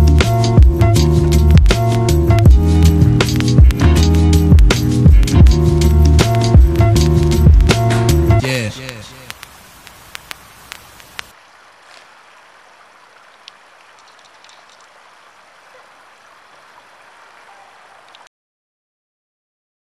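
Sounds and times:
fountain water splashing: 0:01.3 - 0:18.3
sharp clicks: 0:03.2 - 0:05.5, 0:08.8 - 0:18.3.

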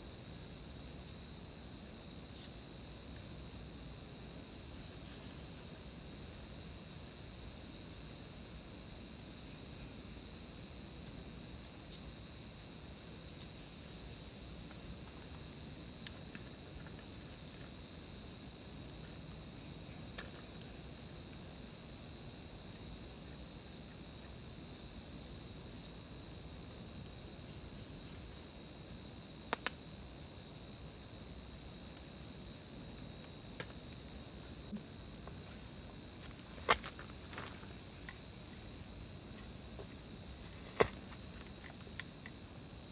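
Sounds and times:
crickets trilling: 0:00.0 - 0:42.9
insects chirping: 0:00.0 - 0:42.9.

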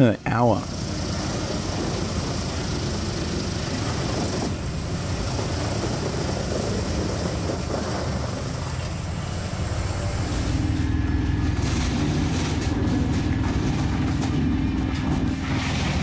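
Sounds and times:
wood chipper grinding log: 0:00.0 - 0:16.0.

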